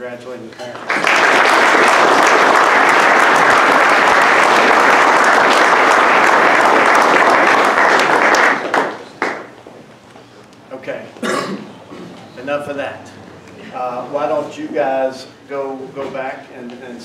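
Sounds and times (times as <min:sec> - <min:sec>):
people applauding: 0:00.7 - 0:09.6.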